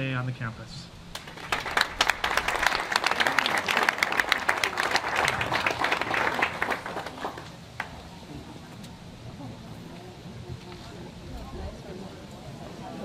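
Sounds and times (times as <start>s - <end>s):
audience applauding: 1.1s - 8.0s.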